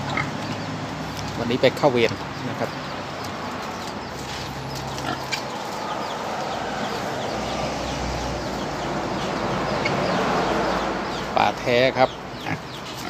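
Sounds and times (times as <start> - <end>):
pigs grunting: 3.7 - 13.0.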